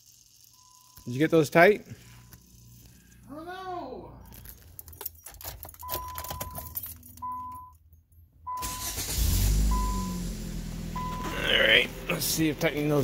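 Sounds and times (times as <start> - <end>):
car keys jangling: 4.3 - 8.2
car engine cranking and starting: 8.5 - 13.0.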